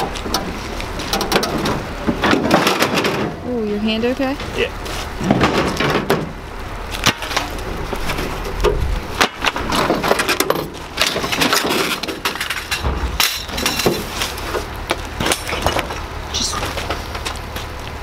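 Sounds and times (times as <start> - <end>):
scrap metal clanking: 7.0 - 17.2.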